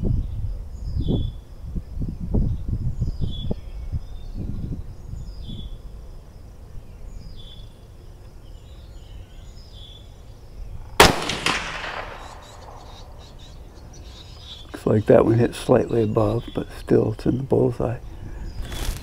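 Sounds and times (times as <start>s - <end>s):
rifle shot with echo: 11.0s - 13.5s.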